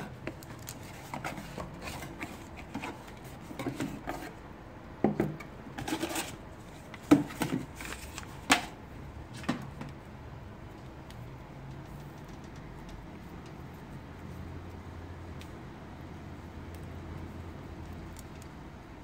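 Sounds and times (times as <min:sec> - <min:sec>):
cardboard box rustling and scraping: 0:00.8 - 0:04.4, 0:05.8 - 0:08.3.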